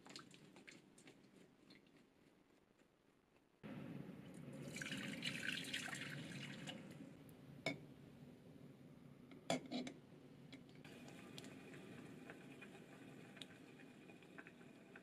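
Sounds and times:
water poured into saucepan: 4.5 - 7.0.

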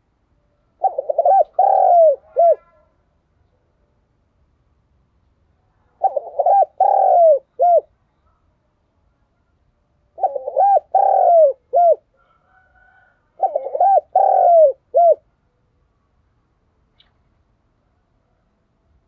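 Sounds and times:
dove cooing: 0.8 - 2.9, 6.0 - 7.9, 10.1 - 15.3.

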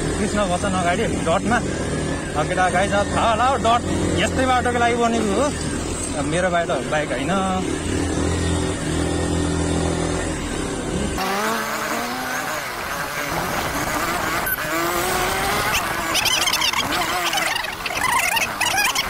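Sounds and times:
motorcycle engine running: 0.0 - 19.0
wavering pitched sounds: 11.4 - 19.0.

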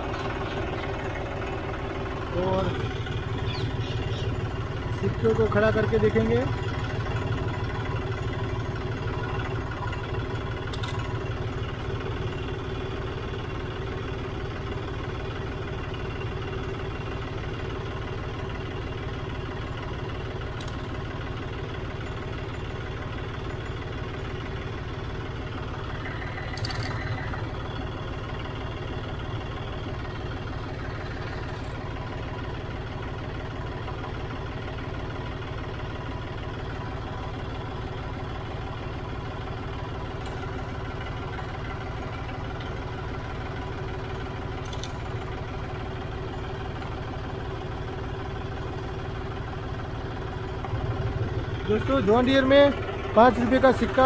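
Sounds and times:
tractor diesel engine idling: 0.0 - 54.0
light clicks: 20.6 - 20.9, 44.6 - 45.1.

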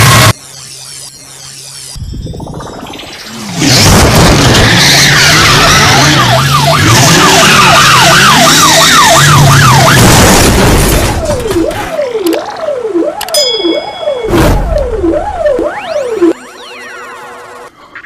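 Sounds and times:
car engine revving: 3.5 - 10.8
police siren: 4.4 - 17.7.

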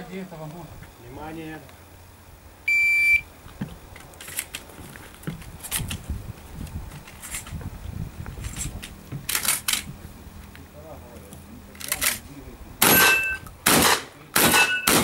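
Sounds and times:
shot timer beep: 2.7 - 3.3, 12.9 - 13.4, 14.6 - 15.0.

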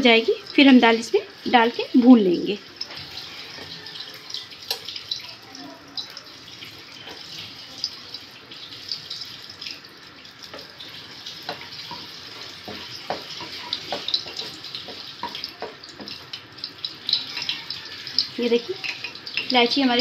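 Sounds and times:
spices sizzling in hot oil: 0.0 - 20.0
spices popping: 10.5 - 20.0.

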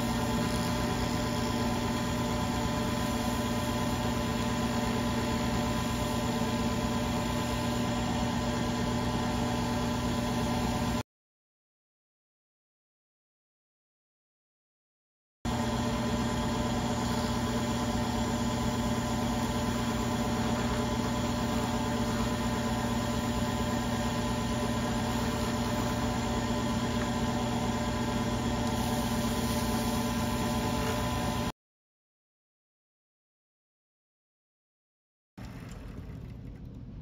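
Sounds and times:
lathe motor humming: 0.0 - 11.0, 15.5 - 31.5.

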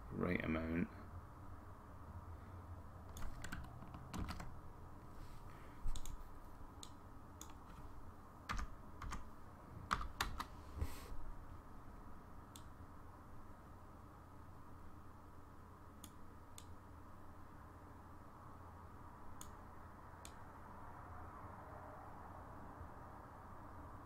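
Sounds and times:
faint hum: 0.0 - 24.0
keyboard and mouse clicks: 3.1 - 4.5, 5.9 - 6.2, 6.8 - 7.8, 9.9 - 10.5.

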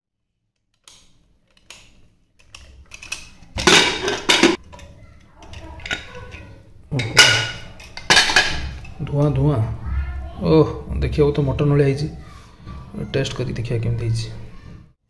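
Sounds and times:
metal scraping and clanking: 2.5 - 9.1.

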